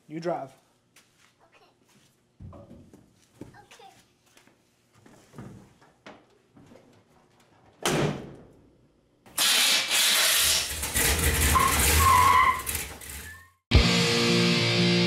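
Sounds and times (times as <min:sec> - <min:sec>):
short squeals: 0:09.6 - 0:13.6.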